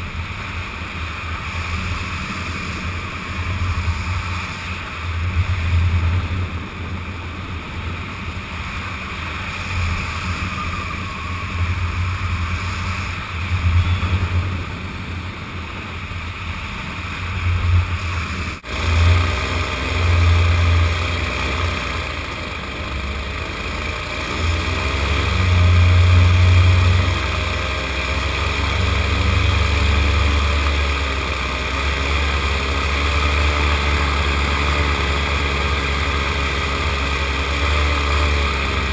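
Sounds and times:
wind buffeting microphone: 0:00.0 - 0:18.7
paramotor engine and propeller: 0:00.0 - 0:38.9.

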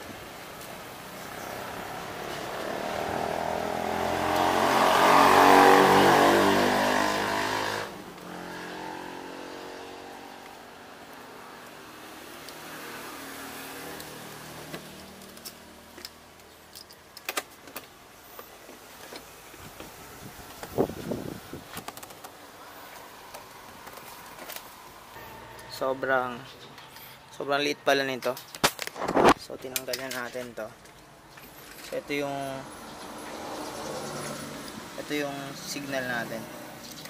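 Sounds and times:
vehicle engine passing by: 0:01.2 - 0:15.9, 0:32.5 - 0:36.9.

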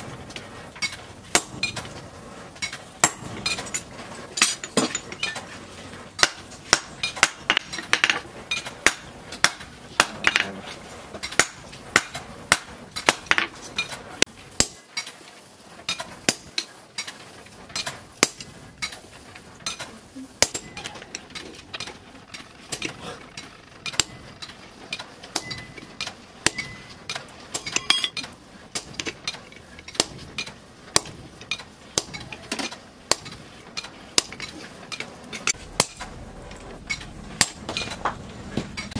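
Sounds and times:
hammer striking metal on anvil: 0:01.3 - 0:01.8, 0:03.0 - 0:03.8, 0:06.2 - 0:10.5, 0:11.2 - 0:13.5, 0:16.3 - 0:16.7, 0:25.4 - 0:26.9, 0:27.6 - 0:28.2, 0:34.2 - 0:34.5, 0:36.9 - 0:37.9.

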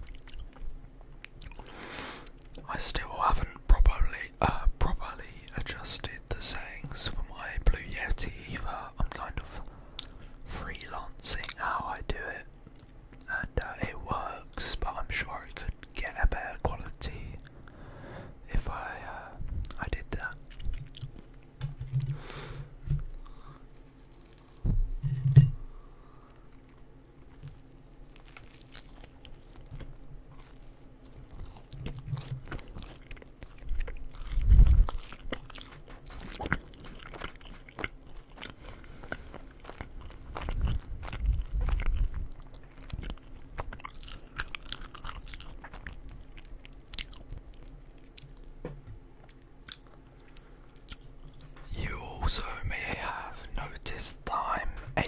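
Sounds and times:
person chewing crunchy food: 0:00.0 - 0:02.6, 0:19.6 - 0:24.7, 0:26.0 - 0:48.6, 0:49.2 - 0:54.8
low thumps: 0:24.6 - 0:25.7
wet mouth sounds: 0:31.3 - 0:47.3.

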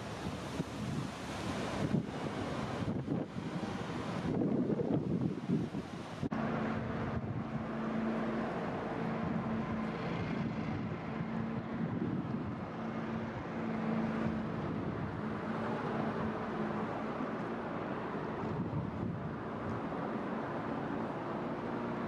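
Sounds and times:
water washing off hull: 0:00.0 - 0:06.3
motorboat engine droning: 0:00.0 - 0:22.0
wind buffeting microphone: 0:00.0 - 0:22.0.

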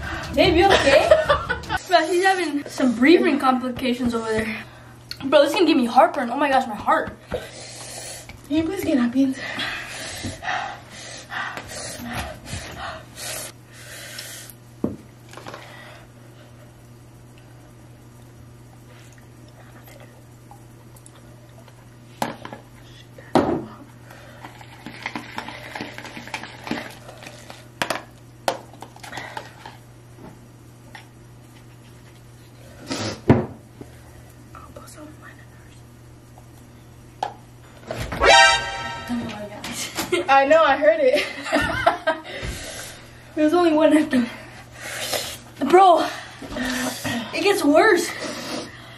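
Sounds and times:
person breathing hard: 0:09.4 - 0:14.5.

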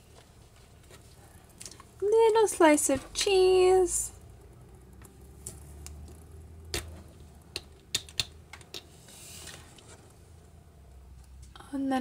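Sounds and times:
plastic pieces clicking together: 0:04.9 - 0:08.9.

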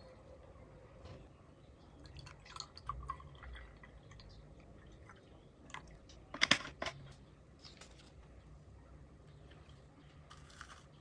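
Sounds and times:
milk pouring into mug: 0:02.0 - 0:06.0.

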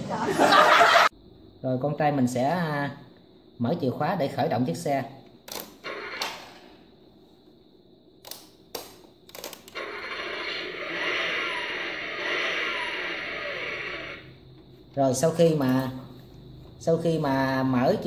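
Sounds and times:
electronic engine-start sound effect: 0:09.8 - 0:14.3.

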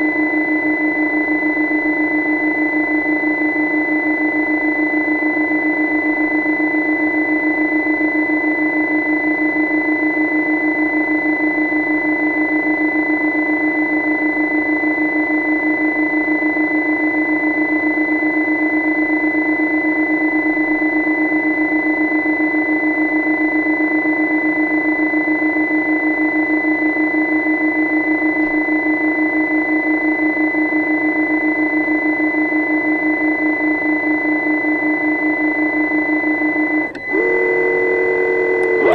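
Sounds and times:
high-pitched whine: 0:00.0 - 0:38.9
steady hum: 0:33.3 - 0:38.9.

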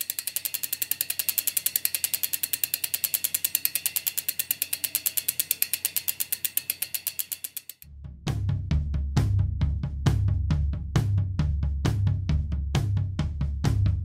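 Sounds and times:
bicycle freewheel ticking: 0:00.0 - 0:07.9.

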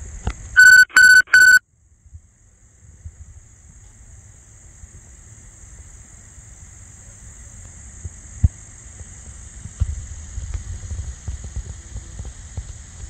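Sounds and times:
wind rumble on microphone: 0:02.0 - 0:05.9, 0:08.0 - 0:13.0.

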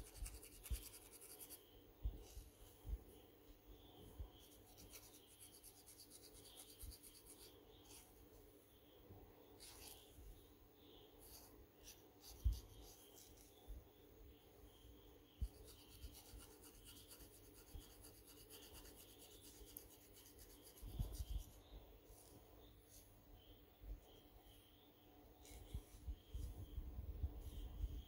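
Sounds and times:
comb scratching hair and scalp: 0:00.0 - 0:01.6, 0:04.4 - 0:08.1, 0:15.4 - 0:23.1.

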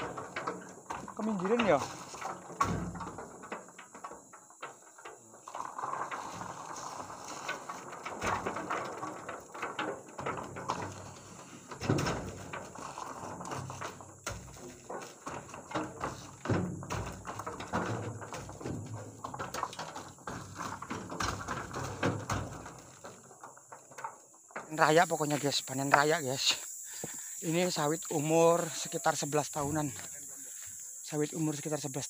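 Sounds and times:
heavy thuds of fruit bunches landing: 0:00.0 - 0:03.4, 0:06.4 - 0:23.1
scraping and rustling: 0:00.0 - 0:32.0.

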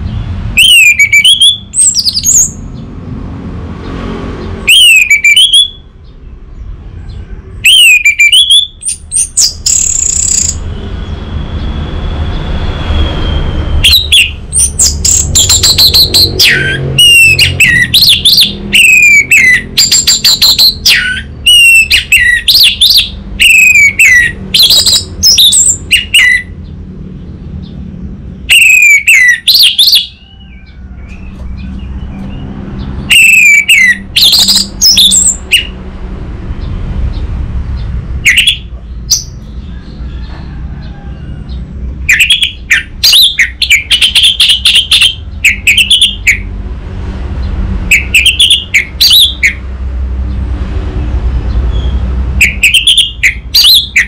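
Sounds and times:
thrush singing: 0:28.4 - 0:35.8.

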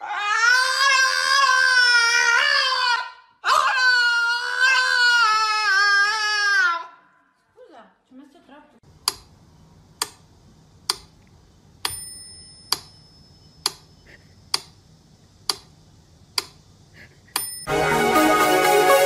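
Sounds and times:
clock ticking: 0:09.0 - 0:09.4, 0:10.8 - 0:13.9
short bell ding: 0:11.9 - 0:13.4.

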